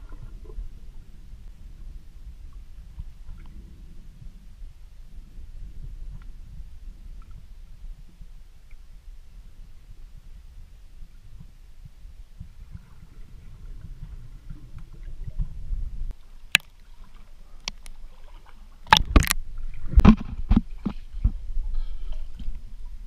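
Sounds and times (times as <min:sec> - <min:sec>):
low rumble: 0:00.0 - 0:16.2.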